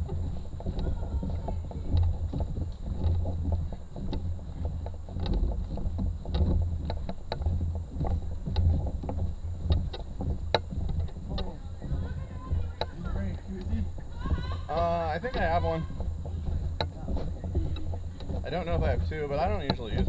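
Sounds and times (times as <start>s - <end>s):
canoe hull knocking and rattling: 0.0s - 20.0s.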